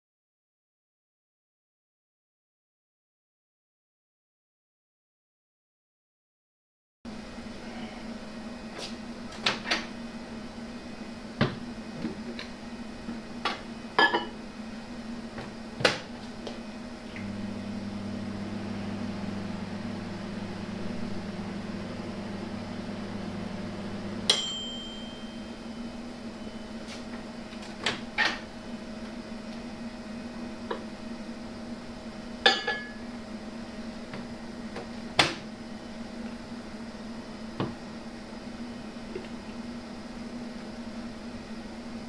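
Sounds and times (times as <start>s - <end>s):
microwave humming: 7.1s - 42.0s
microwave bell ding: 24.3s - 26.8s, 32.5s - 33.0s.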